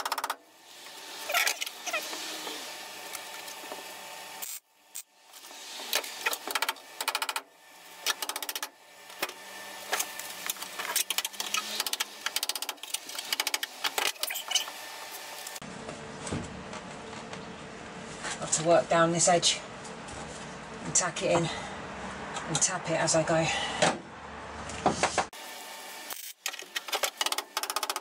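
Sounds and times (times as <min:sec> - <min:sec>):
welder crackling buzz: 0:00.0 - 0:15.6.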